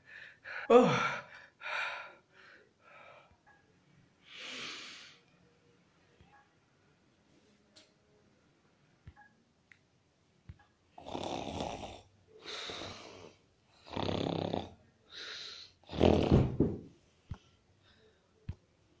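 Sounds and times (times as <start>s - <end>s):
person snoring: 11.0s - 14.8s, 15.8s - 16.5s.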